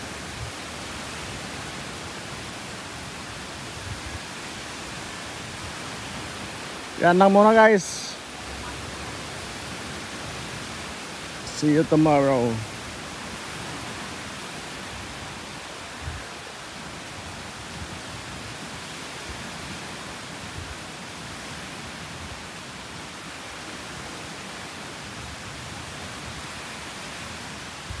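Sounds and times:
surf breaking on beach: 0.0 - 28.0.

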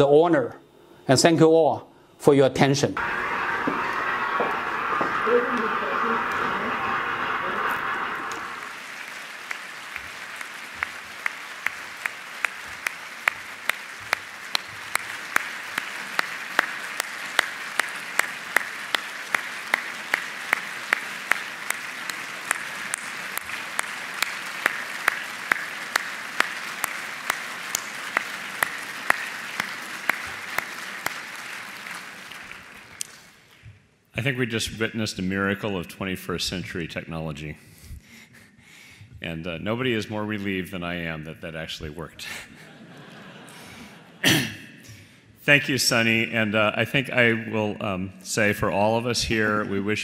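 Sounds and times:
audience applauding: 3.0 - 33.6
loud close claps: 3.0 - 33.8.

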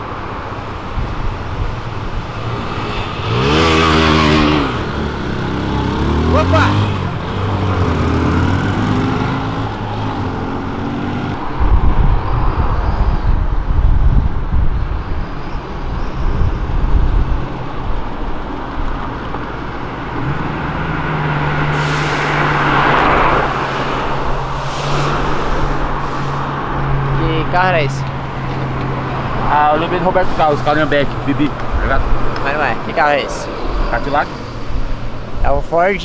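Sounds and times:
car engine deep rumble passing: 0.0 - 36.0
street traffic hum: 0.0 - 36.0
motorcycle engine pulling away: 2.7 - 9.7.

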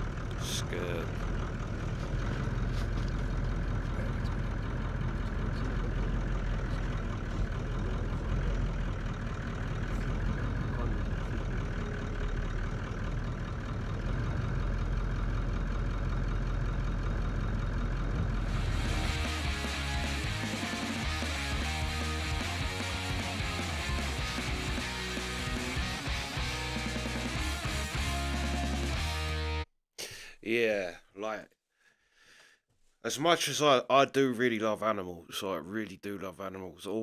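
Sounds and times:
vehicle engine idling: 0.0 - 29.2.

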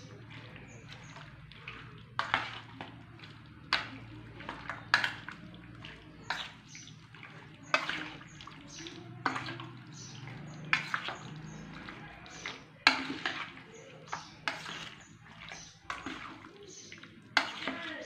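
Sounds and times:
wet squelches and slaps: 0.0 - 18.0.

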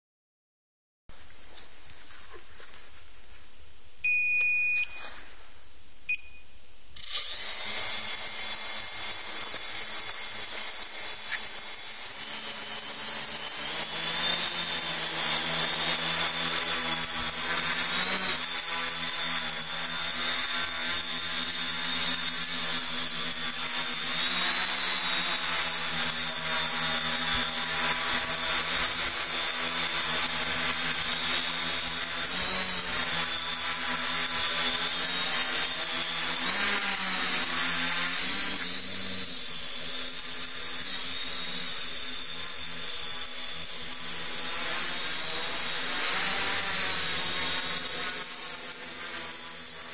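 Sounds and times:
short electronic beeps: 4.0 - 5.1, 6.1 - 6.5
quadcopter rotors whining: 7.0 - 49.9.

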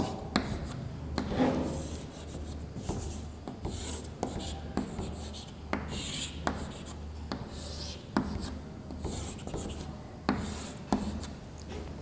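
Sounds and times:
chalk scratching on blackboard: 0.0 - 11.3
chalk tapping on board: 0.0 - 11.3.

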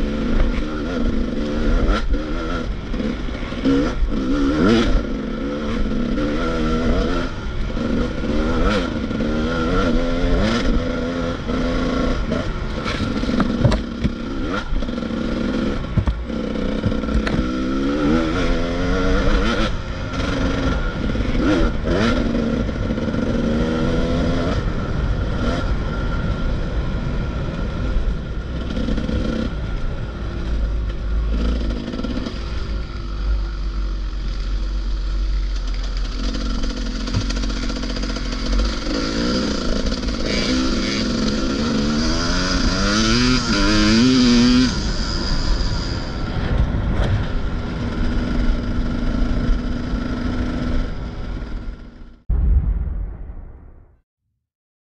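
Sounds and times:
motorcycle engine revving: 0.0 - 52.2
knocks and rattles: 12.9 - 14.2.

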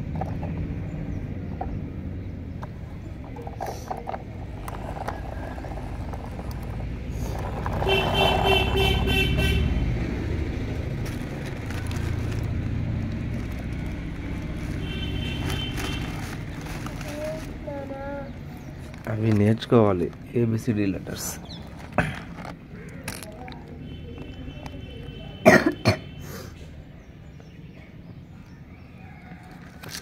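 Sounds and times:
horn tooting: 7.3 - 10.0, 14.6 - 16.3.

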